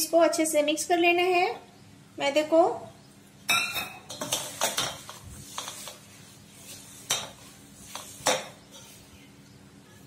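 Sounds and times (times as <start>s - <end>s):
dough scraping in a steel bowl: 4.1s - 9.3s.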